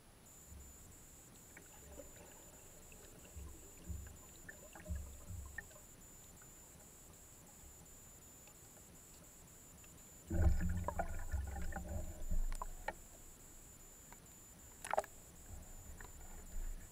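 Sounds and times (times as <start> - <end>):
faint clicks: 1.3 - 11.0, 11.8 - 13.2, 14.0 - 16.8
dull underwater thumps: 3.3 - 5.6.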